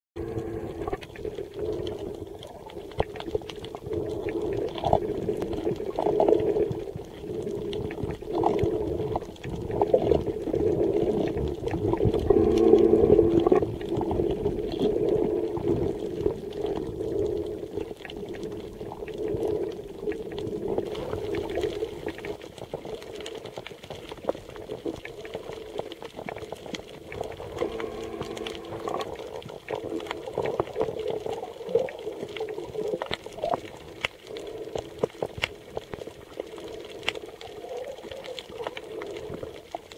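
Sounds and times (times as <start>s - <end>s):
steady low hum: 0.2s - 1.7s, 12.0s - 14.2s, 27.3s - 29.2s
water swishing and gurgling: 0.2s - 39.9s.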